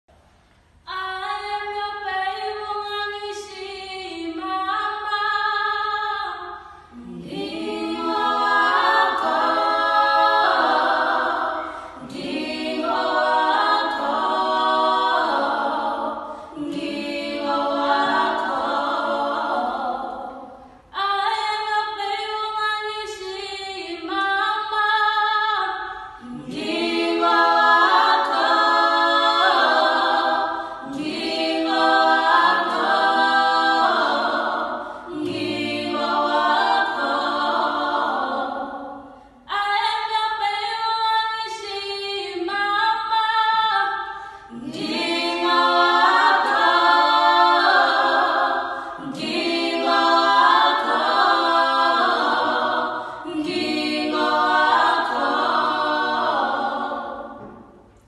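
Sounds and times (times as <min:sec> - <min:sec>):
group singing a cappella in harmony: 0:00.8 - 0:58.0.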